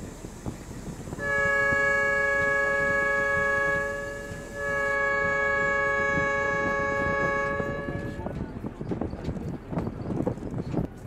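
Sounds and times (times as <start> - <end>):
train horn: 1.2 - 8.3.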